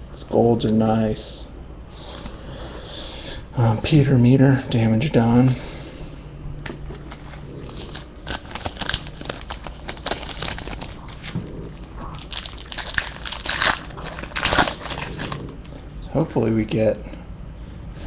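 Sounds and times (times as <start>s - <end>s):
foil wrapper crinkling: 7.1s - 15.7s
pack tearing open: 7.7s - 15.5s.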